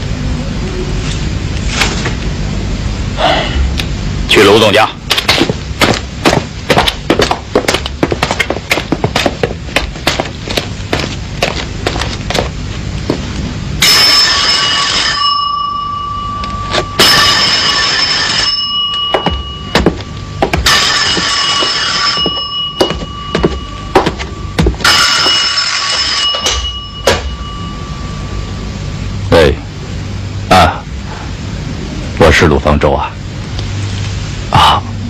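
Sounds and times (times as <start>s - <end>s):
telephone bell ringing: 13.8s - 20.0s, 20.9s - 28.5s.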